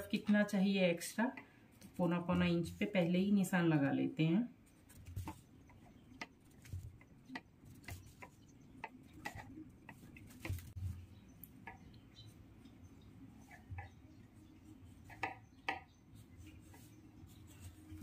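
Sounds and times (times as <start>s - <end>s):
pencil tapping on canvas: 15.1s - 16.0s.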